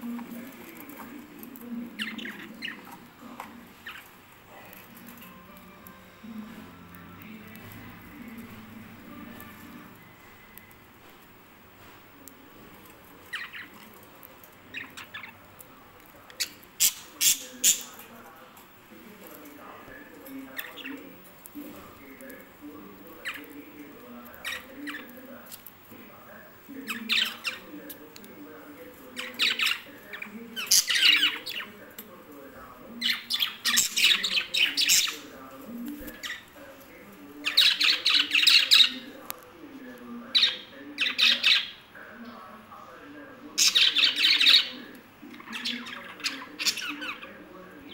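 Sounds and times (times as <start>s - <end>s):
budgerigars chirping: 26.8s - 27.7s, 29.1s - 31.8s, 37.4s - 39.1s, 40.3s - 41.8s, 43.6s - 44.8s, 45.4s - 47.9s.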